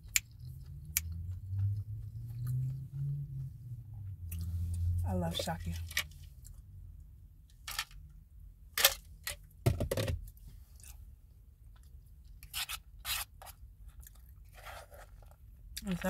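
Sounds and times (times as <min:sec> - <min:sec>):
chewing with wet smacks: 0:00.0 - 0:03.2.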